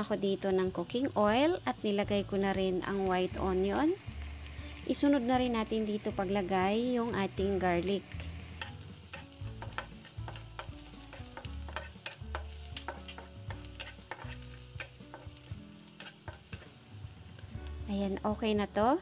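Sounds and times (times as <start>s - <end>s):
oil sizzling: 0.0s - 19.0s
wooden spatula scraping a wok: 7.5s - 17.6s
spatula clicking against pan: 8.1s - 16.7s.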